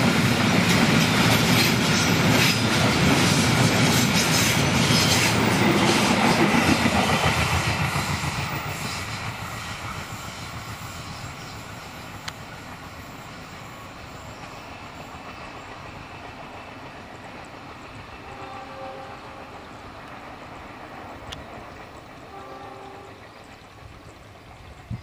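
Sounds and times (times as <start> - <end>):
train wheels rumbling on track: 0.0 - 25.0
locomotive horn: 18.2 - 19.7, 22.3 - 23.3.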